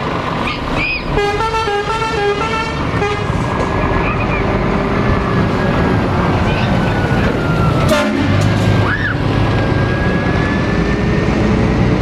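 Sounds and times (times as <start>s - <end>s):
truck diesel engine passing: 0.0s - 12.0s.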